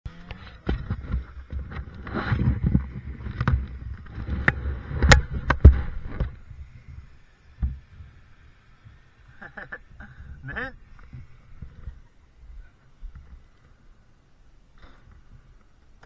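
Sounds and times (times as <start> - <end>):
scraping rustle: 0.1 - 8.2.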